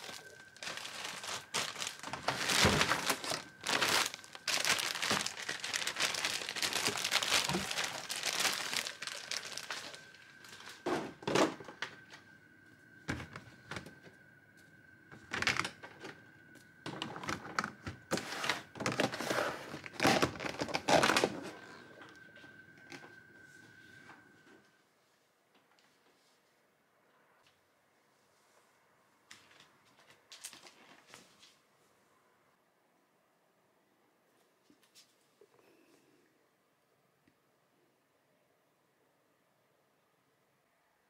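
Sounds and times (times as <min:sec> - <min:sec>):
packaging crinkling: 0:00.0 - 0:10.8, 0:16.9 - 0:22.3.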